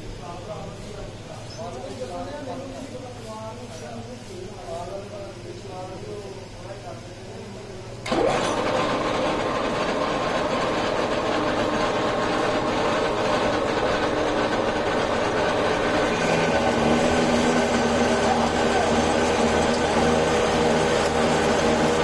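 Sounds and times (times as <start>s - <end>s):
metal lathe running: 8.1s - 22.0s.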